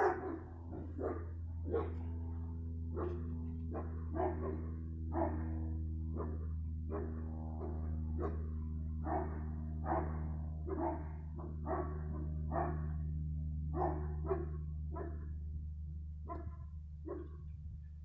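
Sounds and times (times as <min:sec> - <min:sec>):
dog barking: 0:00.0 - 0:02.1, 0:02.9 - 0:13.0, 0:13.7 - 0:15.3, 0:16.2 - 0:17.5
steady low hum: 0:00.0 - 0:18.0.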